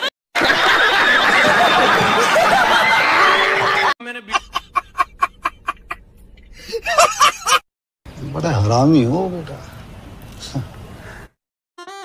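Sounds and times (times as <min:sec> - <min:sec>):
man laughing in bursts: 0:00.0 - 0:06.0, 0:06.6 - 0:07.6
studio audience laughing: 0:00.0 - 0:06.0, 0:06.6 - 0:07.6.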